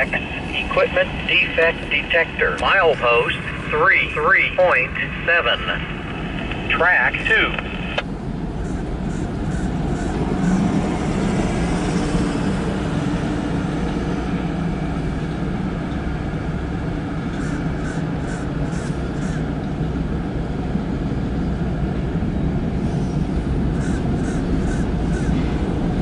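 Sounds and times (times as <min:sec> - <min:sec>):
steel wheels rumbling on rail: 0:08.0 - 0:26.0.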